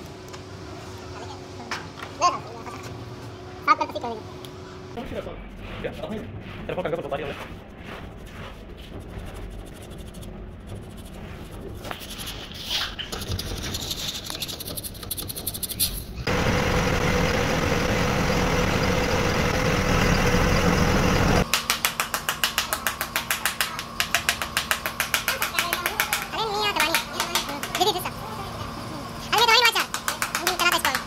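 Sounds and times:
rapid mechanical pulsing: 4.8s - 31.0s
machine rushing with held tone: 16.2s - 21.5s.

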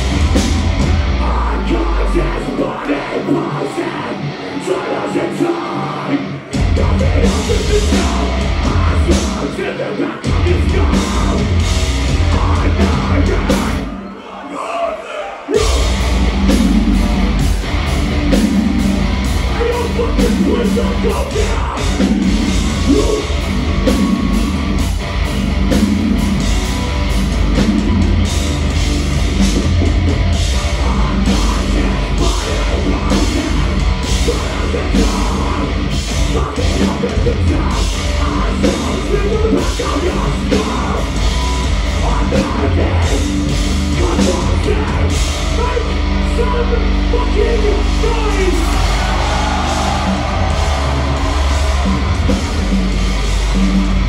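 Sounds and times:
distorted guitars and bass: 0.0s - 54.0s
pounding drums: 15.6s - 45.8s, 48.0s - 54.0s.

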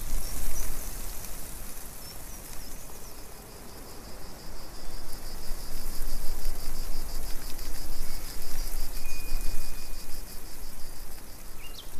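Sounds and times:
loud steady hiss: 0.0s - 3.7s
pulsing insect trill: 7.8s - 11.9s
faint thin whistle: 9.0s - 10.0s.

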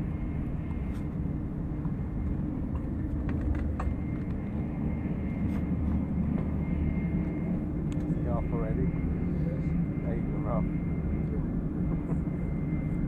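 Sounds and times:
faint high whine: 0.0s - 13.0s
train rumble inside carriage: 0.0s - 13.0s.

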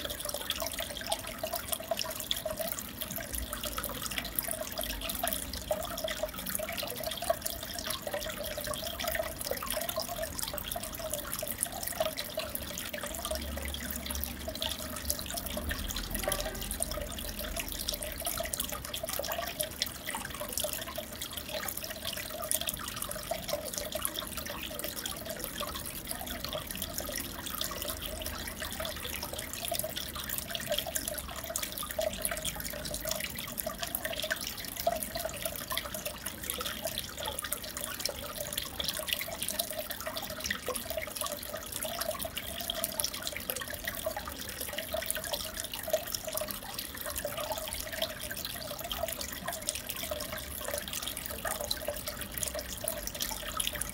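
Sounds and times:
aquarium water bubbling: 0.0s - 53.9s.

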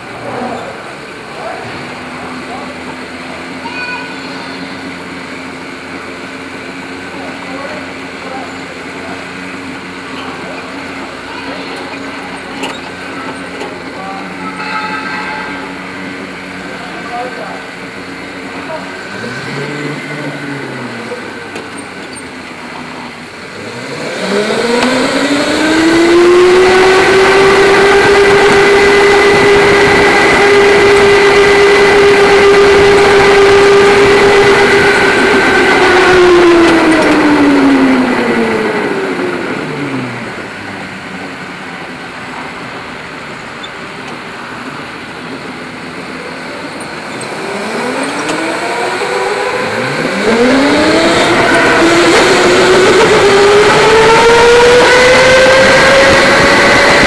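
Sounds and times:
rushing of tyres and air: 4.3s - 57.0s
electric motor whining: 46.6s - 57.0s.

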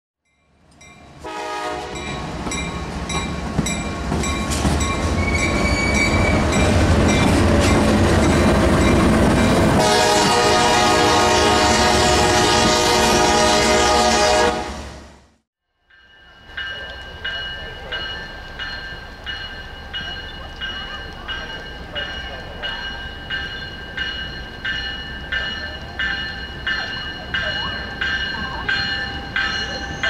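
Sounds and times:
diesel locomotive engine rumbling: 0.6s - 15.4s, 16.3s - 30.0s
train air horn: 1.2s - 2.1s, 9.8s - 15.3s.

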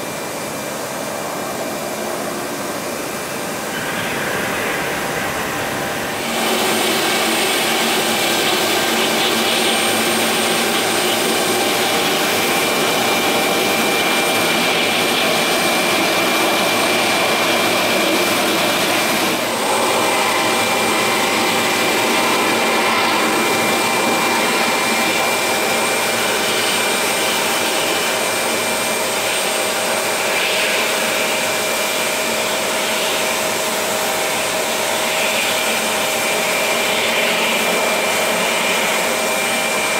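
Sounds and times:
jet engines whining: 0.0s - 29.4s.

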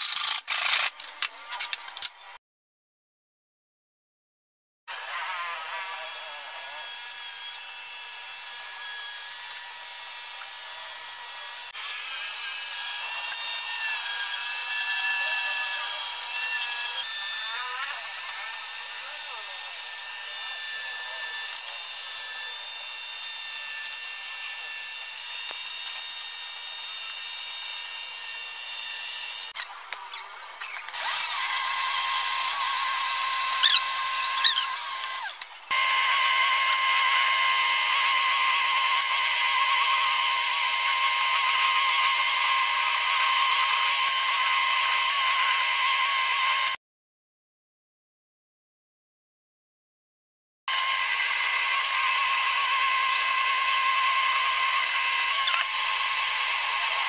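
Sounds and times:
power tool running: 0.0s - 1.2s, 4.9s - 29.6s, 30.6s - 46.8s, 50.7s - 57.0s
rotary tool grinding wood: 0.0s - 2.1s, 4.9s - 46.8s, 50.7s - 57.0s.

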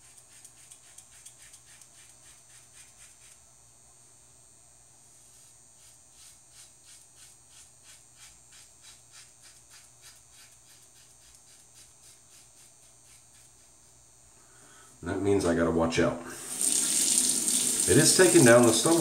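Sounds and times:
razor cutting stubble: 0.0s - 3.5s, 5.2s - 14.1s.

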